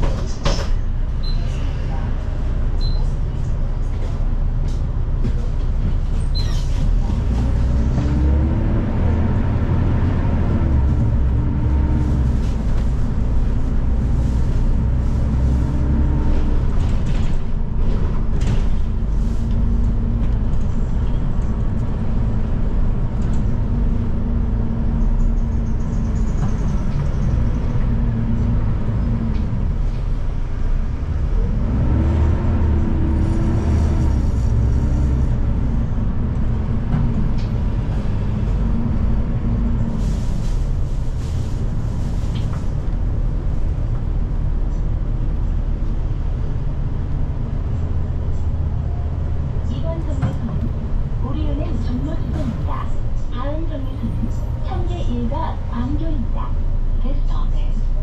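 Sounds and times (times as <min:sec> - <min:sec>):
bus drivetrain whine: 0:00.0 - 0:58.0
bus engine rumble: 0:00.0 - 0:58.0.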